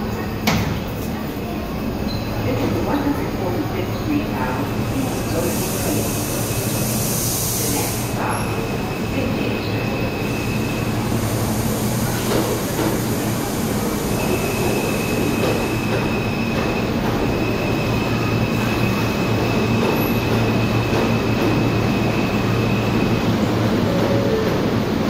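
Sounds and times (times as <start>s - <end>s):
train equipment humming: 0.0s - 25.0s.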